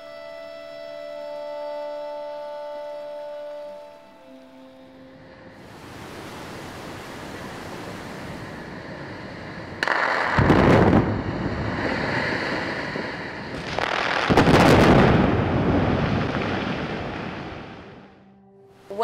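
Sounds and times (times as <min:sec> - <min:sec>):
demolition blasts with rumble: 0:09.5 - 0:18.0.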